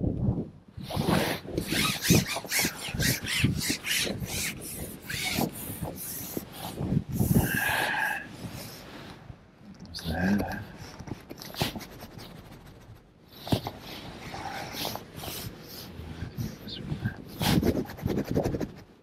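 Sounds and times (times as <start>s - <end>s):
fishing pole scraping and rustling: 0.9s - 9.2s
short high squeak: 1.6s - 5.5s.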